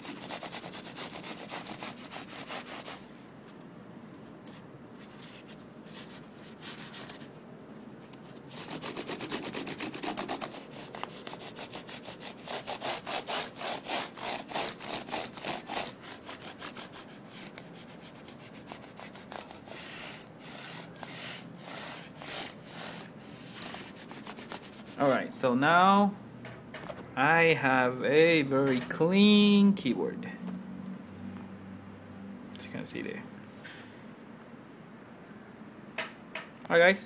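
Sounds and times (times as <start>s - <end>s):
rubbing over keyboard keys: 0.0s - 3.0s, 4.5s - 7.4s, 8.0s - 25.3s.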